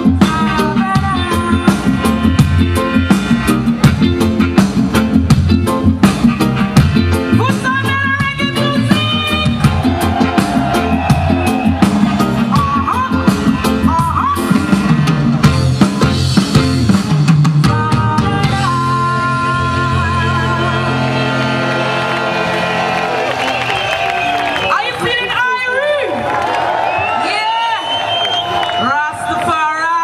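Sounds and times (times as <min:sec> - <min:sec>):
person singing: 0:00.0 - 0:02.4, 0:17.6 - 0:22.6
live reggae band: 0:00.0 - 0:30.0.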